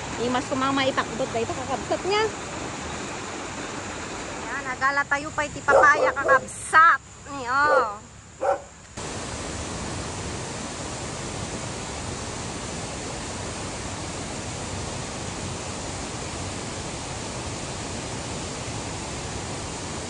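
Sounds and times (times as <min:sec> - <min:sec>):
creek water rushing over rocks: 0:00.0 - 0:05.0.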